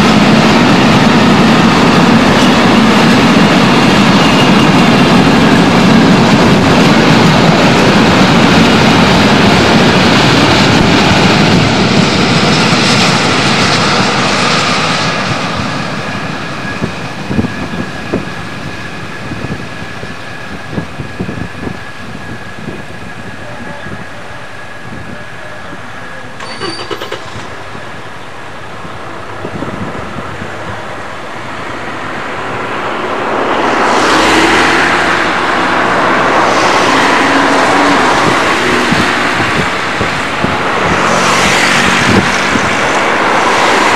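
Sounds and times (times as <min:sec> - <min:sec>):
diesel locomotive engines under load: 0:00.0 - 0:43.9
high whine: 0:00.0 - 0:43.9
train wheel noise: 0:00.0 - 0:43.9.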